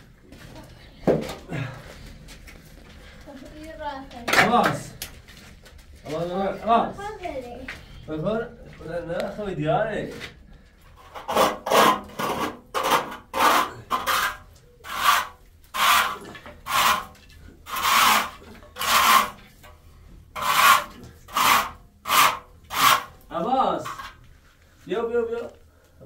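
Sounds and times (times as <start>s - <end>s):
rasping scraping strokes: 11.0s - 19.8s, 20.4s - 24.2s.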